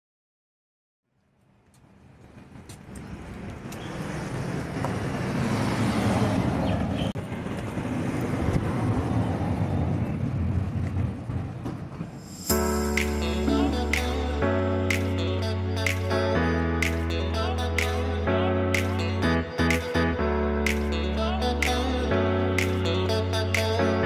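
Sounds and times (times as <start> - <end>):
car and road rumble: 1.7 - 12.6.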